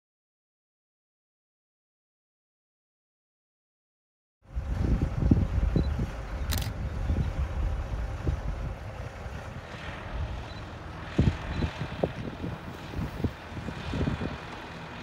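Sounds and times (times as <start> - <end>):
wind buffeting microphone: 4.5 - 15.0.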